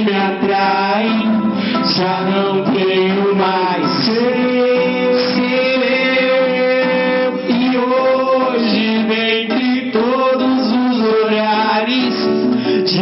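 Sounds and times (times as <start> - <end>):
acoustic guitar: 0.0 - 13.0
man singing into microphone: 0.0 - 13.0.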